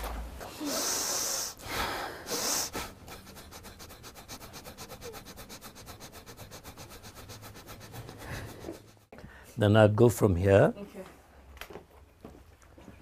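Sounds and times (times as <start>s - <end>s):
forceful hissing breaths: 0.5s - 9.4s
fast rhythmic rubbing: 2.3s - 9.1s.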